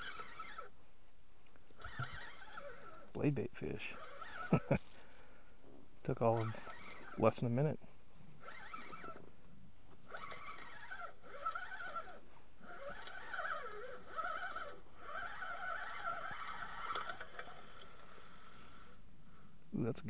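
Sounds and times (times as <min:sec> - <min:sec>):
fishing reel gear whine: 0:00.0 - 0:00.8, 0:01.8 - 0:04.8, 0:06.2 - 0:07.8, 0:08.4 - 0:09.3, 0:10.0 - 0:19.0.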